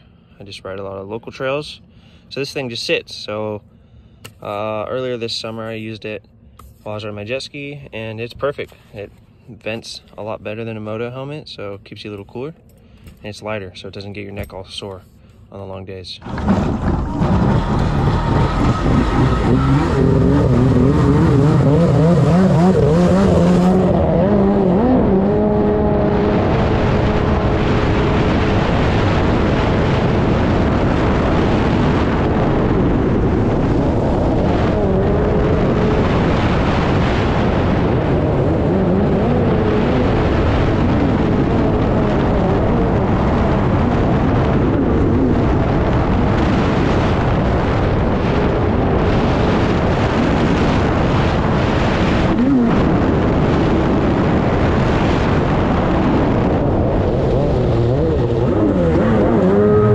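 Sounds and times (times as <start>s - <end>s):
jet ski engine running hard: 18.9s - 59.9s.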